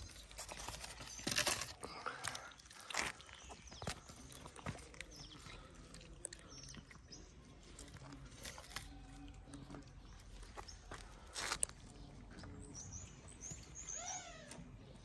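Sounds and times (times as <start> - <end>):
cats crunching dry food: 0.0 - 11.8.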